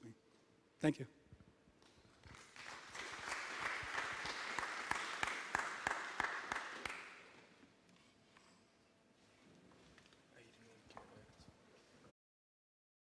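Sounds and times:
sharp claps: 2.2 - 7.4
audience applauding: 2.3 - 7.4.

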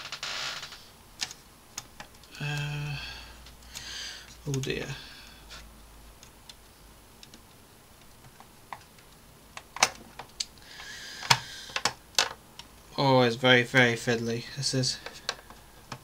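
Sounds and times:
plastic parts clicking together: 8.0 - 12.7.

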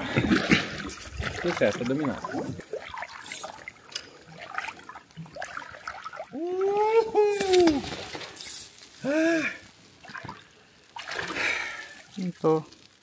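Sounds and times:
water trickling and splashing: 0.0 - 13.0.

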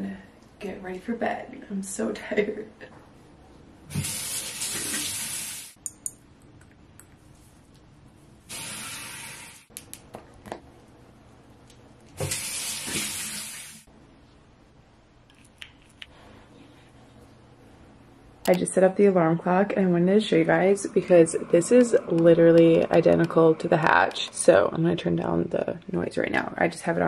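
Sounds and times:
sink tap running: 8.5 - 9.7.

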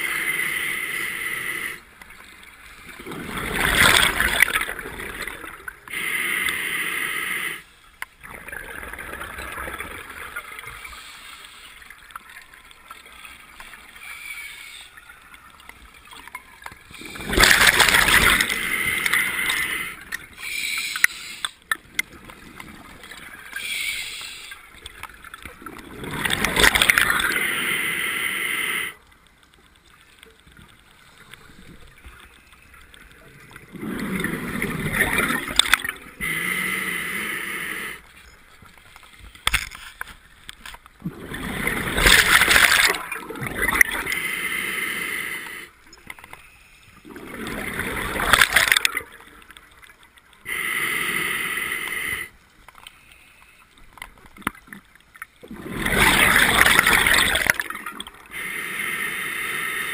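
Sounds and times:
bubbling: 2.1 - 5.9, 8.1 - 11.0, 11.7 - 23.7, 24.6 - 27.7, 29.9 - 36.3, 37.7 - 44.2, 47.0 - 50.5, 53.9 - 58.4
diver breathing through regulator: 5.9 - 7.7, 17.0 - 21.6, 23.6 - 24.7, 36.1 - 38.1, 43.9 - 45.8, 50.5 - 52.4, 58.3 - 59.9.

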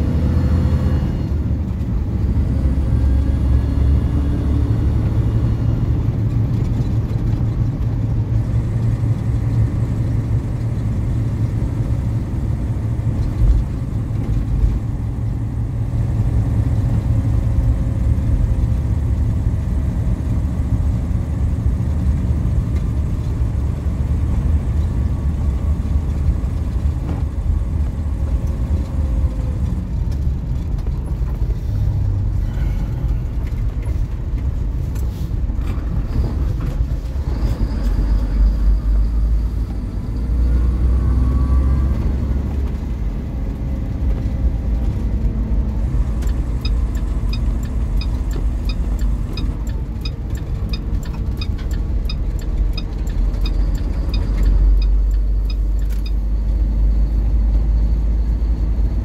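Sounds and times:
truck engine and road rumble: 0.0 - 59.0.

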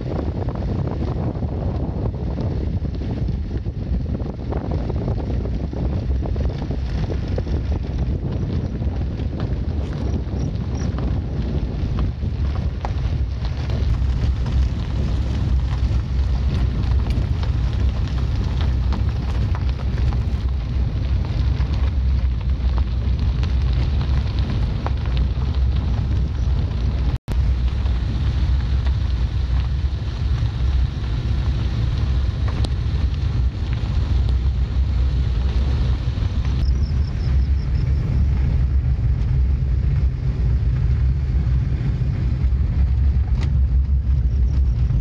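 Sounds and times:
wind buffeting microphone: 0.0 - 45.0.

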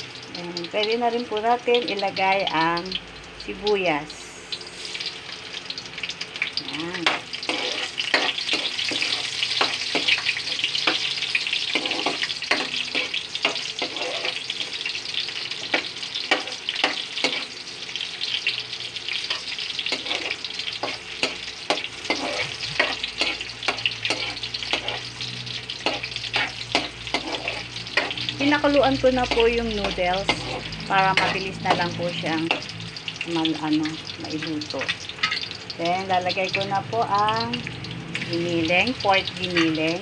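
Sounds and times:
garlic and onion sizzling in oil: 0.0 - 40.0
metal spatula scraping wok: 7.0 - 17.6, 19.1 - 32.8.

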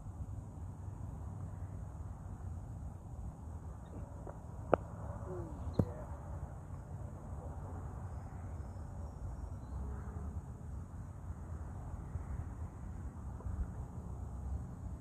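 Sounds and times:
low background noise: 0.0 - 15.0
cricket ball knocks: 5.7 - 6.1.

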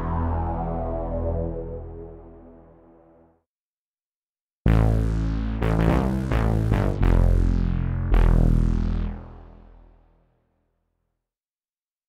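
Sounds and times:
deep sustained bass notes: 0.0 - 3.3
bright synthesizer chords: 4.7 - 9.8.

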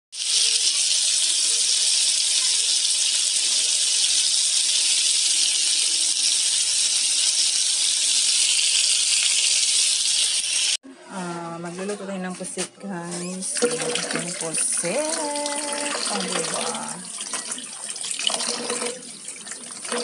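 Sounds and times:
squid sizzling on a hot pan: 0.2 - 10.8.

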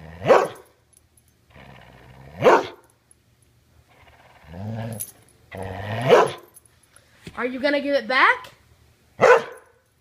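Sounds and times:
dog growling: 0.0 - 0.5, 1.5 - 2.8, 3.9 - 6.4.

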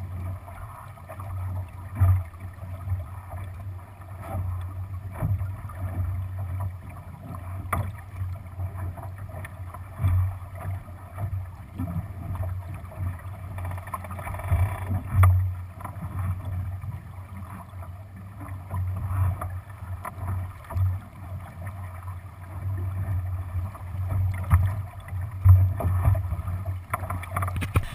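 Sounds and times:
water slapping along hull: 0.0 - 27.9
wind on microphone: 27.5 - 27.9.

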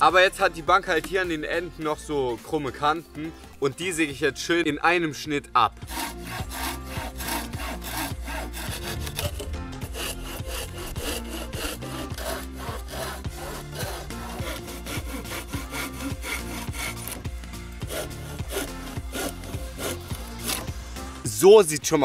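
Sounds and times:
handsaw cutting wood: 5.8 - 21.2.

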